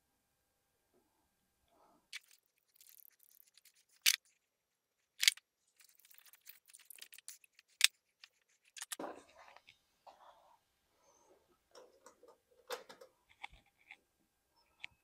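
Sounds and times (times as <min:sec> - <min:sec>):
cable rustling and clicking: 0:02.1 - 0:04.4, 0:05.0 - 0:09.8.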